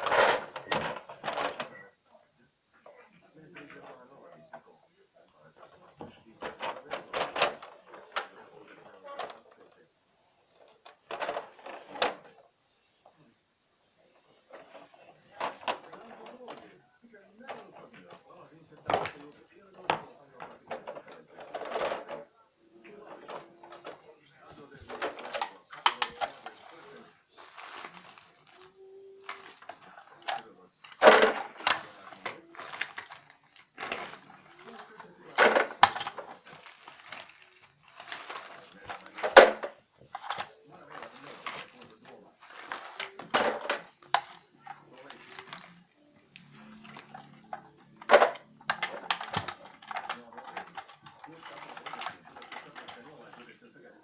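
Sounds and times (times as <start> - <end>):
plastic toy trucks handled: 0.0 - 1.9, 5.4 - 12.4, 14.2 - 54.0
toy clatter: 24.8 - 45.8, 46.4 - 53.5.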